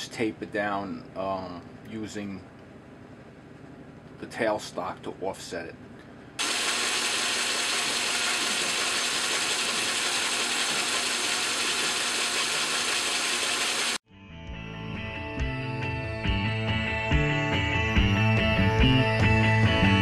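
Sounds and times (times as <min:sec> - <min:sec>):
metal lathe running: 0:06.4 - 0:14.0.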